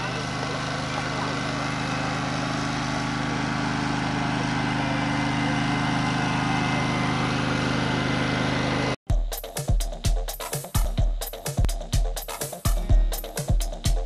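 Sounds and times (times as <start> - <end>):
engine humming steadily: 0.0 - 9.0.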